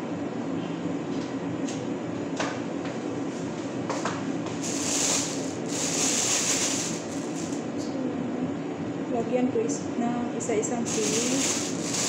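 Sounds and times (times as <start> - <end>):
low mechanical hum: 0.0 - 12.0
plastic bag crinkling: 10.9 - 12.0.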